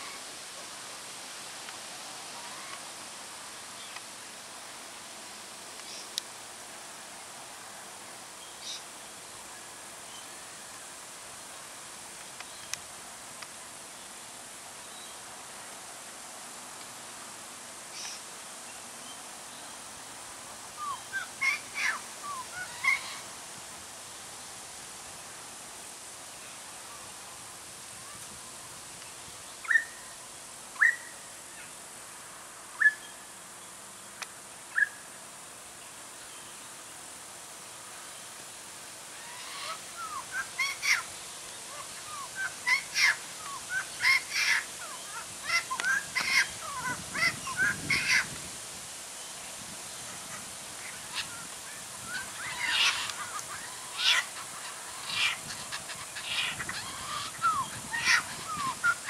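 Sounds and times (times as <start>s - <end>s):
kookaburra laughing call: 52.2s - 59.0s.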